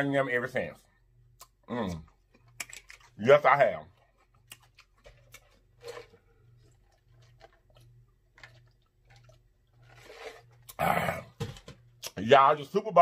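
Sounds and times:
person gulping a drink: 0:04.5 - 0:11.7.

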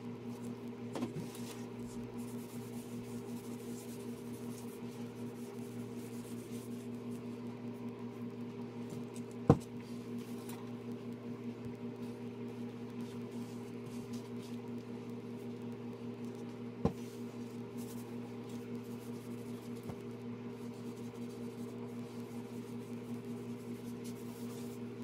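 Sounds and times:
low electrical hum: 0:00.0 - 0:25.0.

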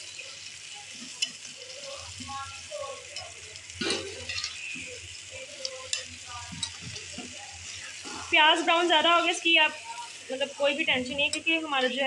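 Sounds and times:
vegetables sizzling in a pan: 0:00.0 - 0:12.0
spoon stirring: 0:04.2 - 0:10.1.

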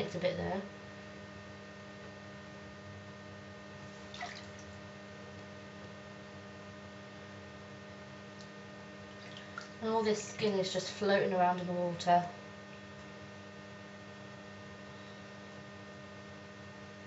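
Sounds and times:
steady low hum: 0:00.0 - 0:17.0
bath water lapping: 0:03.8 - 0:04.8, 0:09.1 - 0:10.4
small water splash: 0:03.9 - 0:04.8, 0:09.1 - 0:09.8.

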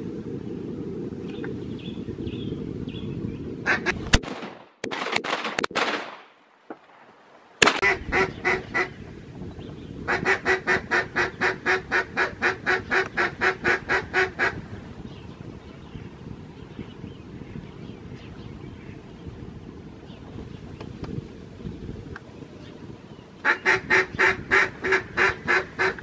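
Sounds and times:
wind rumble on microphone: 0:00.0 - 0:05.0, 0:07.6 - 0:26.0
duck quacking: 0:03.7 - 0:04.0, 0:07.8 - 0:08.9, 0:10.1 - 0:14.6, 0:23.4 - 0:26.0.

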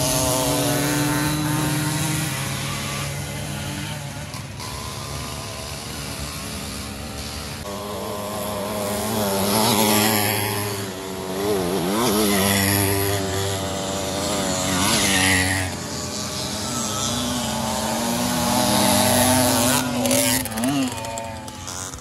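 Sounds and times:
small two-stroke engines revving: 0:00.0 - 0:22.0.

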